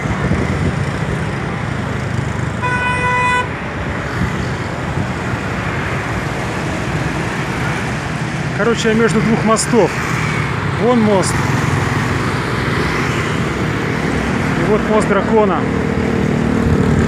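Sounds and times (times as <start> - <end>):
road traffic passing: 0.0 - 17.0
vehicle horn toot: 2.6 - 3.5.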